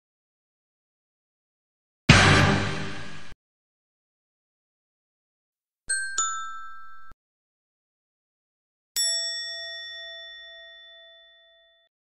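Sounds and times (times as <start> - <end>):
bell-like chime dings: 5.9 - 7.2, 9.0 - 12.0.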